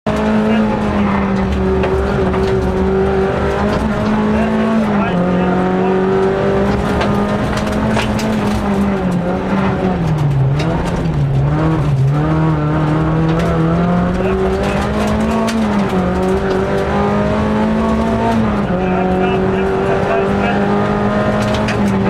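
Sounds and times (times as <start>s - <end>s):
road and tyre noise: 0.0s - 22.0s
car engine revving hard: 0.1s - 22.0s
sharp rattles and clicks: 6.6s - 16.9s, 21.4s - 22.0s.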